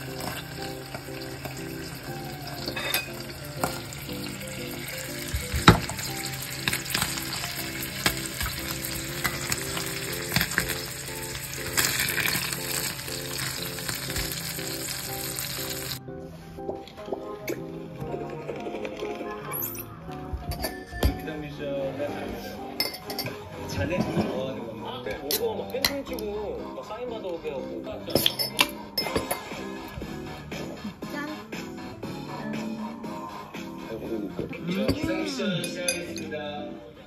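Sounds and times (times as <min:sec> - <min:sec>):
roe sizzling in oil: 0:00.0 - 0:16.0.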